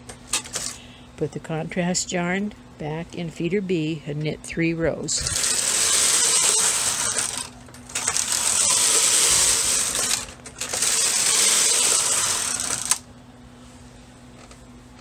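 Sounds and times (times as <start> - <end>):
knitting machine carriage rattling: 5.2 - 13.0.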